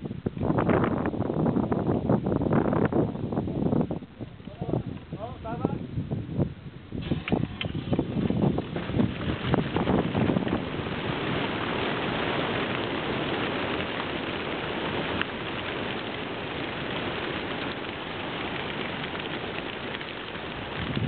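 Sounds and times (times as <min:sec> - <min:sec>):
pigeons flapping wings: 0:07.0 - 0:21.0.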